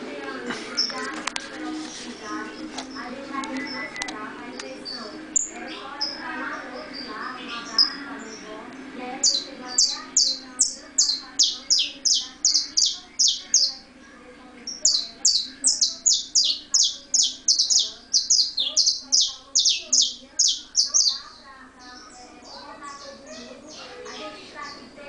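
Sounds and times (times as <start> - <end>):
finch calling sharp high notes: 9.2 - 13.8, 14.7 - 21.4.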